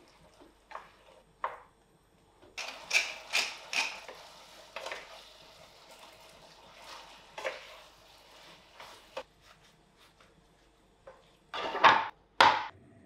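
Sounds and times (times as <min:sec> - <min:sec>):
wooden spoon scraping frying pan: 0:03.0 - 0:10.4.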